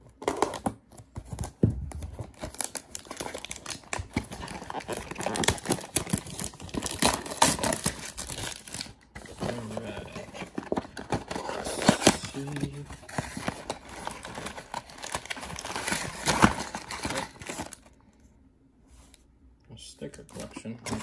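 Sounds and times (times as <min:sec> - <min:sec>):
plastic wrap tearing: 0:02.3 - 0:17.9.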